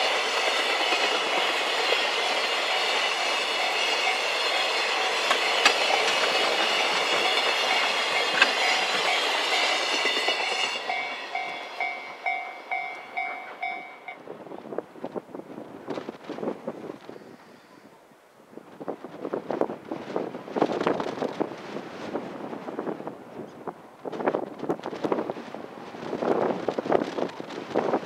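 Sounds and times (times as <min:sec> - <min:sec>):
freight train wheels on rail: 0:00.0 - 0:28.0
clattering rail joints: 0:00.1 - 0:13.9.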